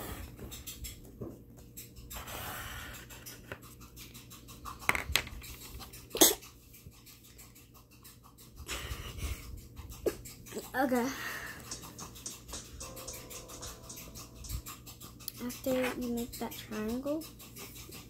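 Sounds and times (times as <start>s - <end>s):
pencil drawing on paper: 2.2s - 4.2s, 13.7s - 18.0s.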